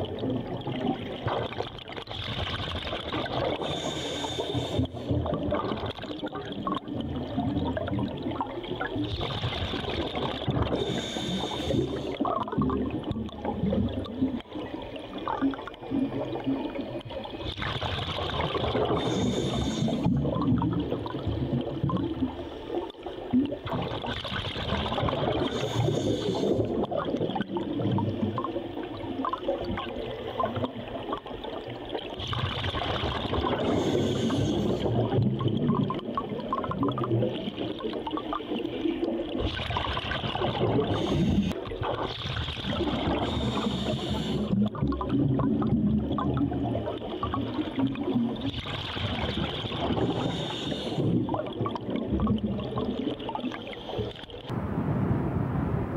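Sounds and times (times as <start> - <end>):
gurgling exhaust bubbles: 0.0 - 54.5.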